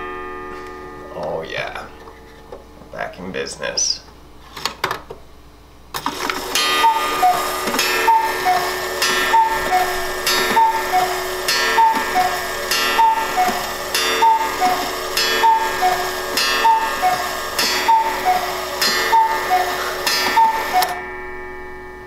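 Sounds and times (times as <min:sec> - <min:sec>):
clock mechanism click: 0:06.0 - 0:21.0
cuckoo clock two-note call: 0:06.4 - 0:21.8.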